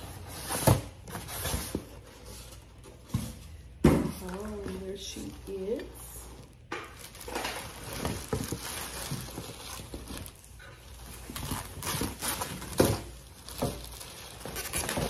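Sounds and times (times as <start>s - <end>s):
plastic wrapping crinkling: 4.2s - 15.0s.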